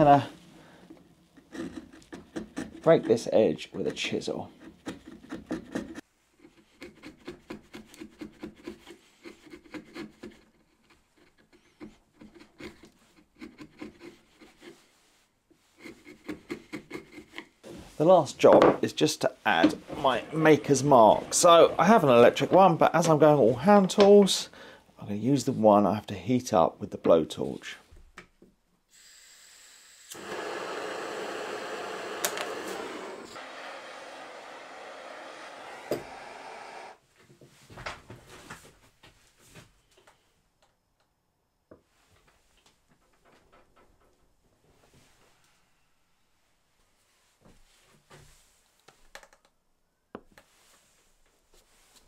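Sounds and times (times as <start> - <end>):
chisel scraping wood: 1.3 - 17.5, 19.6 - 22.7, 30.2 - 37.0
blowtorch flame hissing: 30.0 - 37.0.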